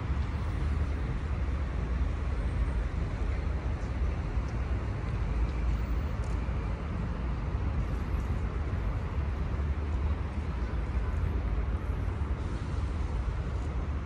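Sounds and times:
city road traffic rumble: 0:00.0 - 0:14.0.

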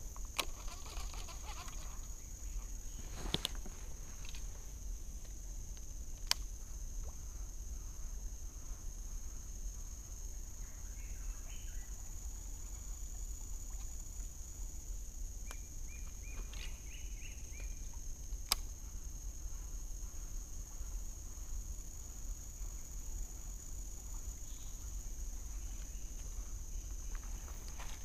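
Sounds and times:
insects droning: 0:00.0 - 0:28.0.

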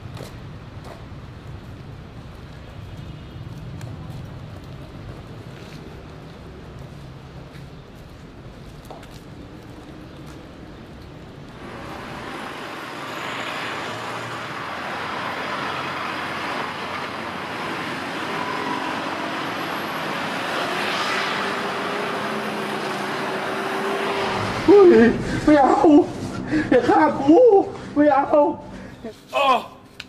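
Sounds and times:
passing cars: 0:00.0 - 0:29.0.

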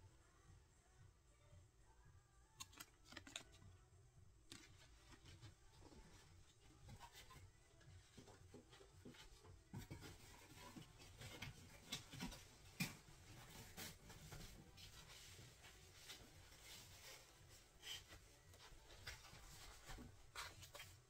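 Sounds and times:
small objects handled: 0:02.6 - 0:03.7.

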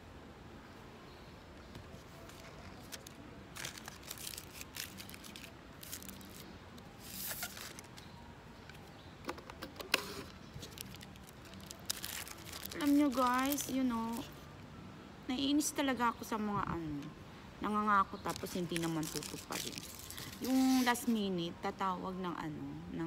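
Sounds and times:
paper rustling and tearing: 0:02.0 - 0:06.4, 0:07.0 - 0:08.1, 0:10.6 - 0:14.2, 0:18.4 - 0:21.1.

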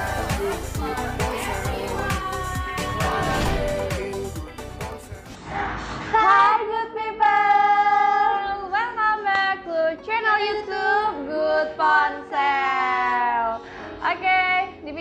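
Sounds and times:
high voice singing: 0:00.0 - 0:05.3.

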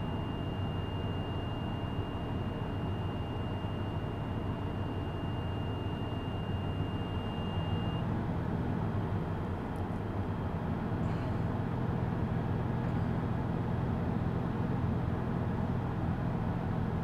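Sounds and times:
high warning tone: 0:00.0 - 0:08.0
bus engine idling: 0:01.3 - 0:17.0.

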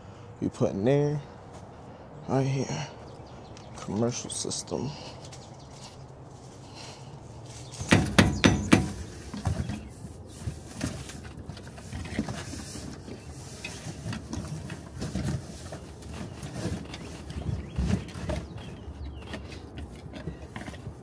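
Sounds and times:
loud knocks: 0:07.8 - 0:09.0
light clicks and handling rustles: 0:08.9 - 0:21.0.

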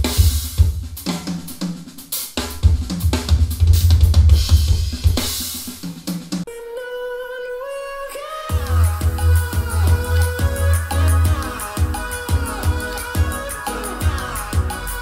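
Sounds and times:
drum kit through speakers: 0:00.0 - 0:06.5, 0:08.5 - 0:15.0
deep heavy kick bass: 0:08.5 - 0:15.0.

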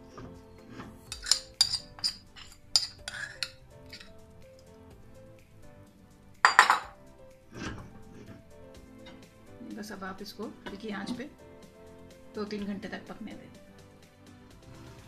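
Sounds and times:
soft background music: 0:00.0 - 0:15.0
spoon clinking against glass bowl: 0:01.1 - 0:04.1, 0:06.4 - 0:07.0.

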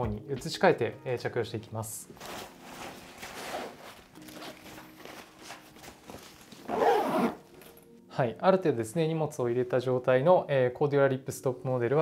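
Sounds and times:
nylon backpacks rustling: 0:02.0 - 0:07.9.

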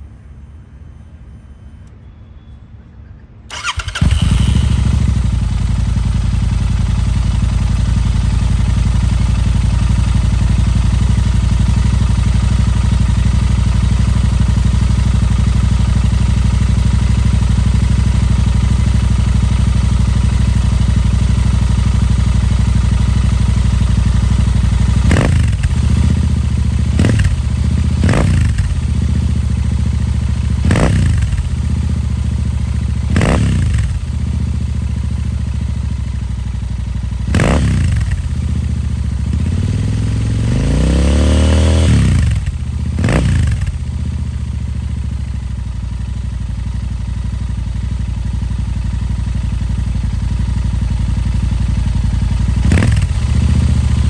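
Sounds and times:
engine revving: 0:03.5 - 0:05.4, 0:24.9 - 0:26.2, 0:26.9 - 0:27.4, 0:28.0 - 0:28.8, 0:30.6 - 0:31.4, 0:33.1 - 0:34.0, 0:37.3 - 0:38.2, 0:39.3 - 0:43.7, 0:52.6 - 0:53.8
motorcycle engine idling: 0:03.5 - 0:54.0.

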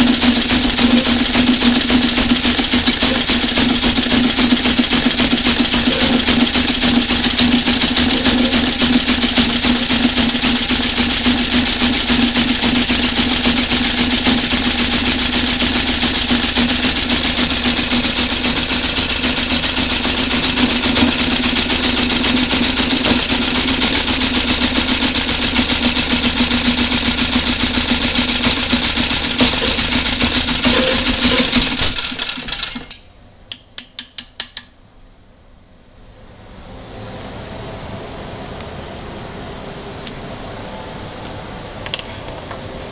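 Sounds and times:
small generator engine running: 0:00.0 - 0:33.1.

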